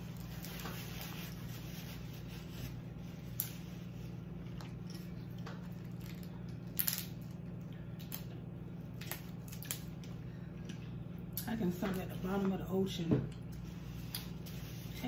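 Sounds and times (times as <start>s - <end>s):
steady low hum: 0.0s - 15.0s
crab shells cracking: 5.7s - 10.1s.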